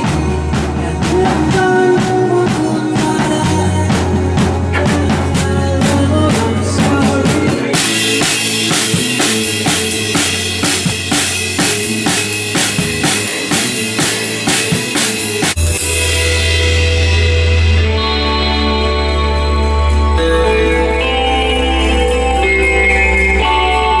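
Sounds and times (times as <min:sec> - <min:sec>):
drum kit beat: 0:00.0 - 0:18.6
bass: 0:00.0 - 0:24.0
keyboard: 0:00.0 - 0:24.0.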